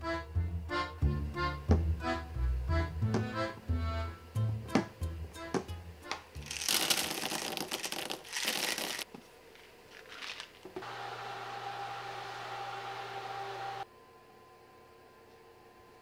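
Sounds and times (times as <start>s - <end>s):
steady low hum: 0.0s - 6.5s
parchment paper crinkling: 6.4s - 10.8s.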